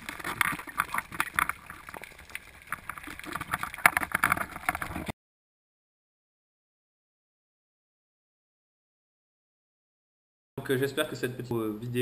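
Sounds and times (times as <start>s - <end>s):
underwater crackling and knocking: 0.0s - 5.1s.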